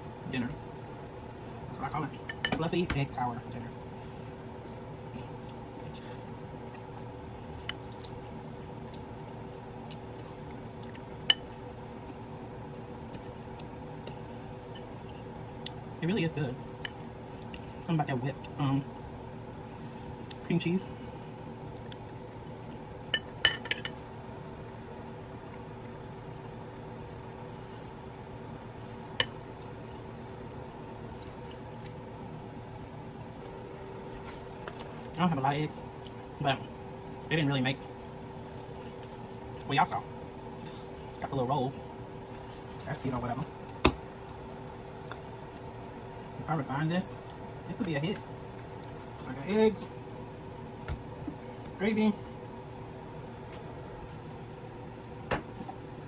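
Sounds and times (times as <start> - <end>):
steady hum: 0.0 - 56.0.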